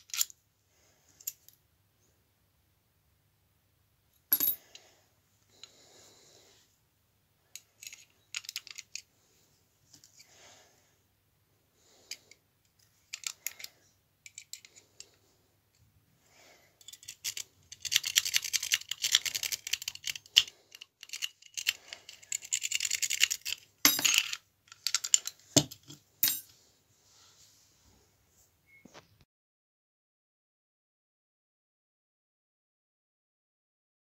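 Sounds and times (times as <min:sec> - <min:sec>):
lock pick clicking and scraping: 0:00.0 - 0:00.4, 0:07.6 - 0:09.1, 0:12.1 - 0:15.1, 0:16.8 - 0:26.5.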